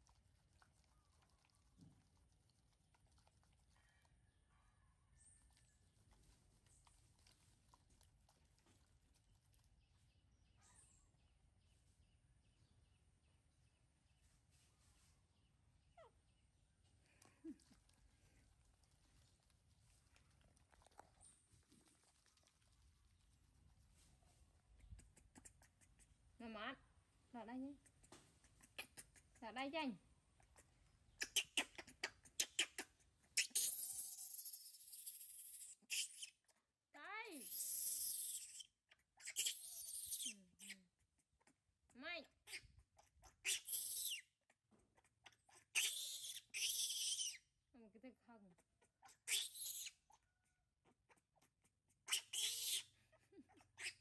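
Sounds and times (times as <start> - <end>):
baby monkey screaming: 28.5 - 29.4, 31.2 - 36.4, 37.3 - 40.8, 42.4 - 44.3, 45.0 - 47.4, 48.8 - 50.2, 50.8 - 54.0.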